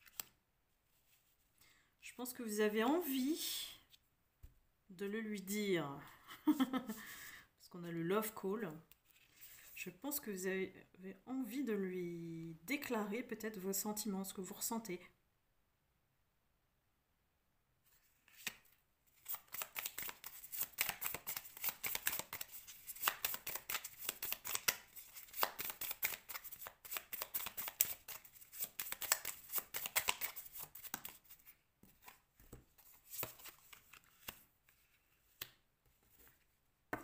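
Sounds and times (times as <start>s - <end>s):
cards shuffling: 0.0s - 0.4s, 17.9s - 37.0s.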